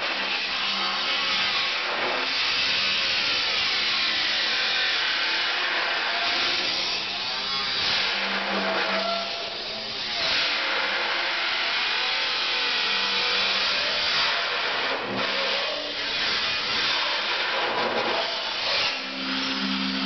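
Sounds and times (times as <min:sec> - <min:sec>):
angle grinder cutting steel: 0:00.0 - 0:20.0.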